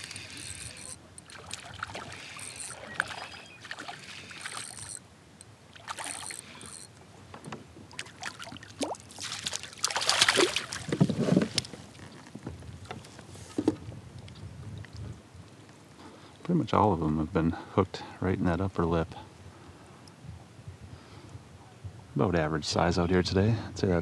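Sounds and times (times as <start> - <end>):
fish splashing at water surface: 5.8 - 6.7, 8.0 - 11.0.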